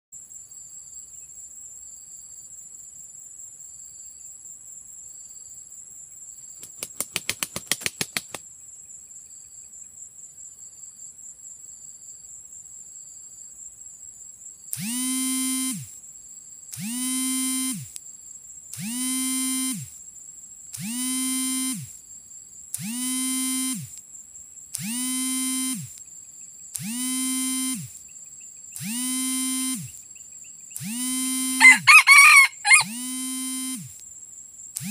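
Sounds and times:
insects buzzing: 0.2s - 34.9s
loud pitched call: 31.5s - 33.2s.

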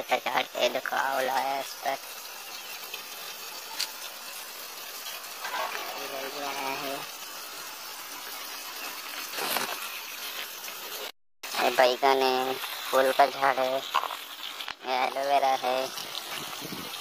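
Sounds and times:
person's voice: 0.0s - 2.0s, 5.8s - 7.1s, 11.5s - 13.9s, 14.8s - 16.0s.

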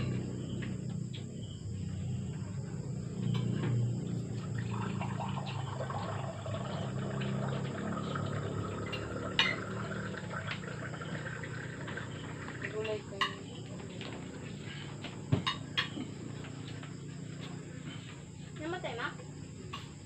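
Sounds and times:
steady low hum: 0.0s - 20.0s
spoons clinking on plates: 15.4s - 16.0s.

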